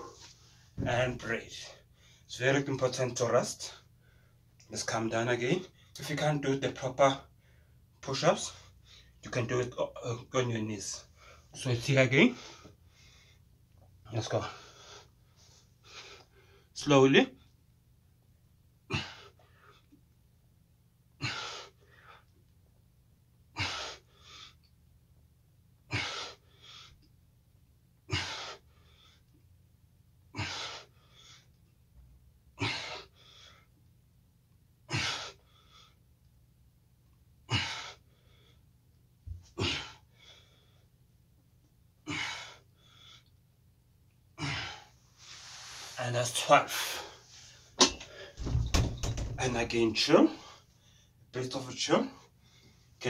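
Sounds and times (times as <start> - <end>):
man breathing hard: 21.2 - 22.3, 25.9 - 27.0, 28.1 - 29.2, 30.3 - 31.5, 44.4 - 45.0.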